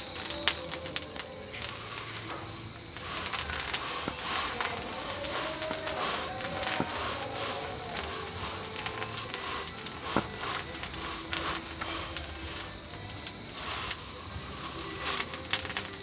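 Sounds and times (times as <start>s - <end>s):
tea leaves scraping in a wok: 0.0s - 16.0s.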